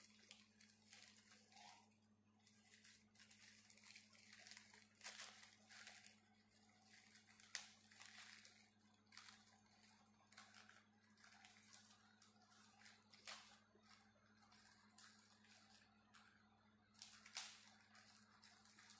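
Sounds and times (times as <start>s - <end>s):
plastic bag crinkling and tearing: 2.4s - 16.3s, 16.9s - 18.9s.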